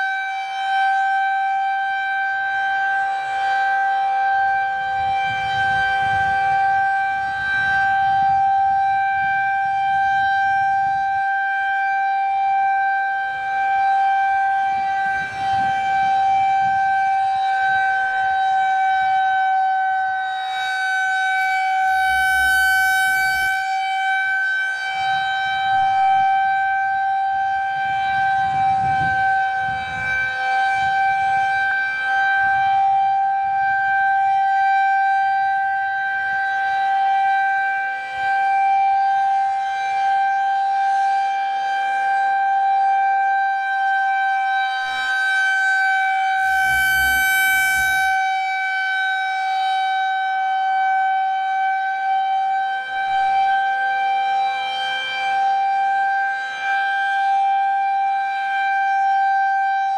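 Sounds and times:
warning siren steady tone: 0:00.0 - 0:59.9.

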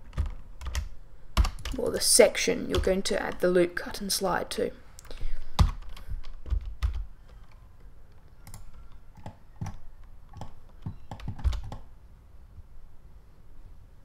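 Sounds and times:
keyboard keys clicking: 0:05.6 - 0:07.6, 0:08.4 - 0:11.9.

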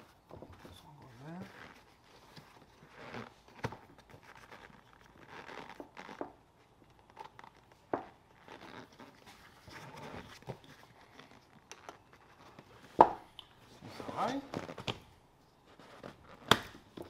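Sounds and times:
leather rustling: 0:00.0 - 0:13.0.

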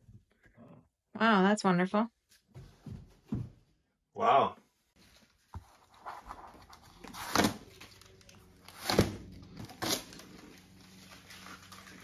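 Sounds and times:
tape ripping off cardboard: 0:07.0 - 0:08.0, 0:08.6 - 0:10.4.

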